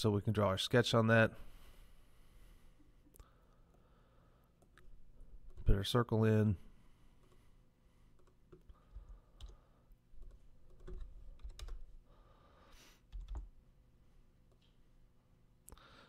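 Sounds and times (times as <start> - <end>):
computer mouse clicks: 8.1 - 9.6
keyboard keystrokes: 10.2 - 11.8, 13.1 - 13.5.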